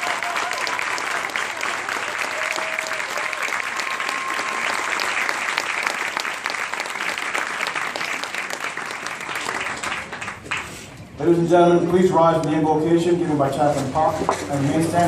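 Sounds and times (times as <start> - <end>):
people whooping: 0.0 - 5.3
crowd applauding: 0.0 - 10.9.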